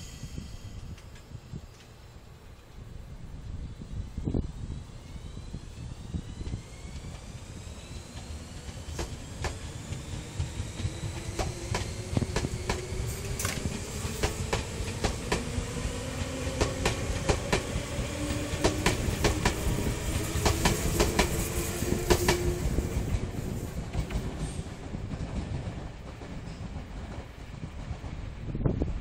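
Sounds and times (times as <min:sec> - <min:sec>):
train low rumble: 0:00.0 - 0:29.0
faint rising motor whine: 0:03.8 - 0:23.7
train wheels clicking over rail joints: 0:06.3 - 0:28.4.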